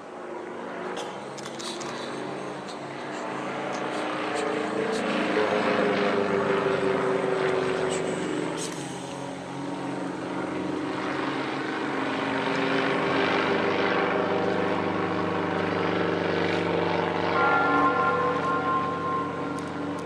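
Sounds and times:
propeller plane engine: 0.0s - 20.0s
bell-like ringing tones: 17.2s - 20.0s.

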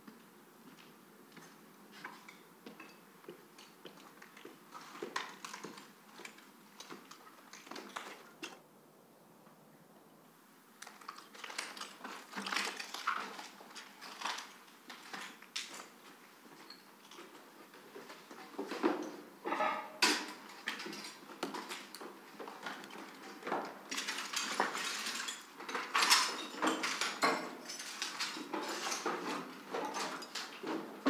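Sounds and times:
footsteps crunching over rubble: 0.0s - 8.6s, 10.8s - 19.4s.

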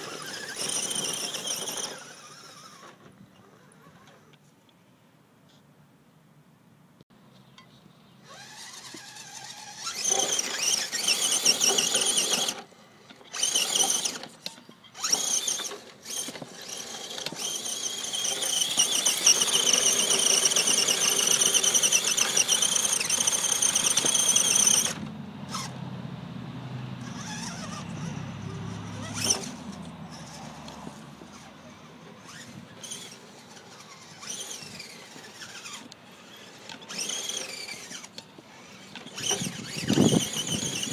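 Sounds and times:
electric motor whining: 0.0s - 4.4s, 8.3s - 12.7s, 13.3s - 25.7s, 27.0s - 40.9s.

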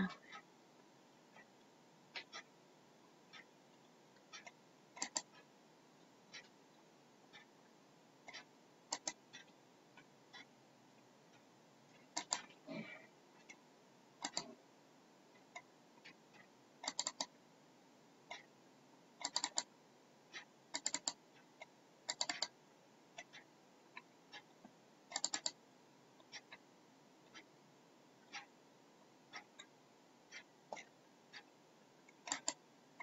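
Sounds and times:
computer mouse clicks: 4.4s - 5.3s, 8.3s - 9.2s, 12.0s - 12.5s, 14.2s - 14.6s, 16.8s - 17.3s, 19.2s - 19.7s, 20.7s - 22.5s, 25.1s - 25.6s, 32.2s - 32.6s
keyboard clicks: 5.0s - 5.3s, 8.9s - 9.2s, 14.2s - 14.5s, 16.8s - 17.3s, 19.2s - 19.6s, 20.7s - 21.2s, 22.1s - 22.5s, 25.1s - 25.5s, 32.2s - 32.6s.

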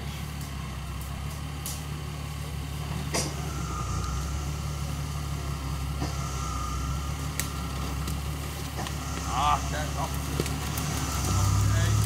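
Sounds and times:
car engine running at low revs: 0.0s - 12.0s
steady high whine: 0.0s - 12.0s.

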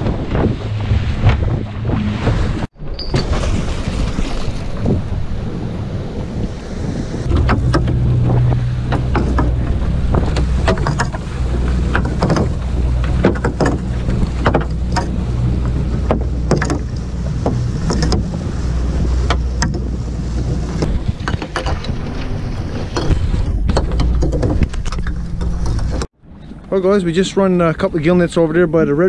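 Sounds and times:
boat motor running: 0.0s - 3.1s, 7.2s - 26.7s
choppy sea: 0.0s - 29.0s.

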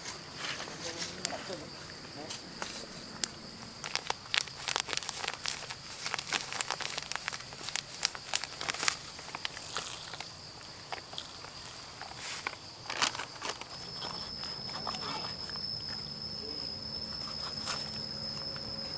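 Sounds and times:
high insect drone: 0.0s - 18.9s
wood fire crackling and popping: 3.2s - 16.1s.

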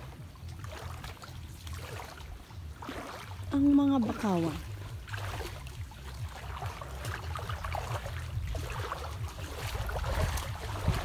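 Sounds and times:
shallow water splashing: 0.0s - 11.0s
wind on microphone: 4.9s - 11.0s.

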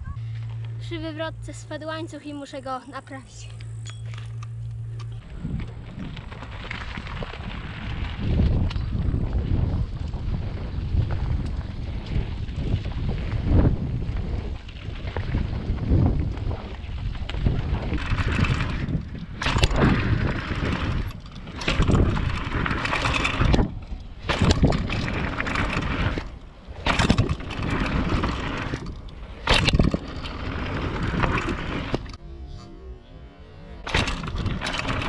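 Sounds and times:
bike rattling: 0.0s - 32.2s, 33.6s - 35.0s
bike tyres rumbling on gravel: 4.2s - 32.2s, 33.8s - 35.0s
bike knocking over bumps: 5.6s - 32.2s.

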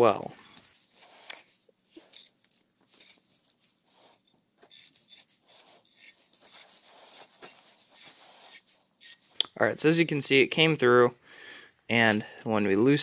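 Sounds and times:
metallic rubbing and clicks: 0.1s - 9.5s.

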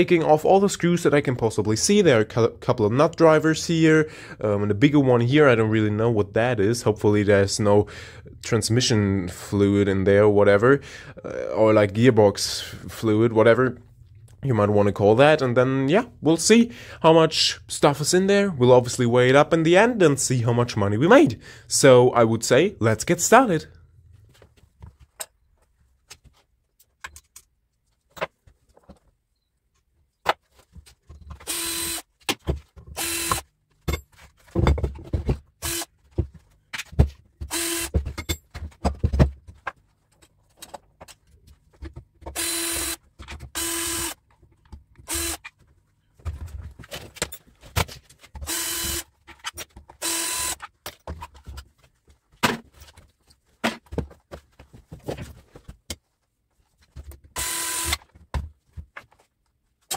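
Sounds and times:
cordless drill running: 31.4s - 32.1s, 33.0s - 33.4s, 35.6s - 35.9s, 37.5s - 38.0s, 42.4s - 43.0s, 43.6s - 44.2s, 45.1s - 45.4s, 48.4s - 49.1s, 50.0s - 50.6s, 57.4s - 58.0s.

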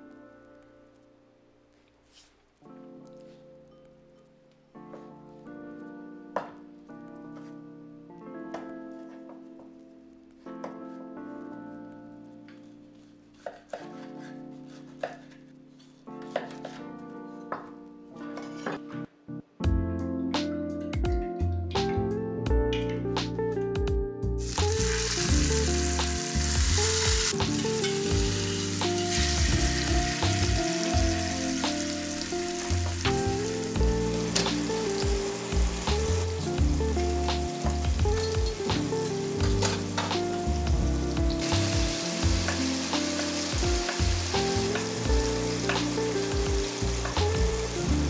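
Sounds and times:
background music: 0.0s - 48.0s
meat sizzling in hot oil: 24.4s - 48.0s.

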